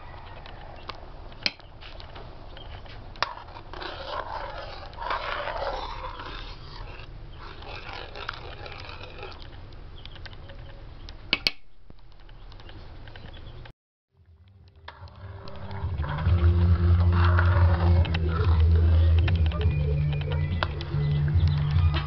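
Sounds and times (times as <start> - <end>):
metal ladle stirring soup: 2.6 - 10.5, 14.8 - 21.2.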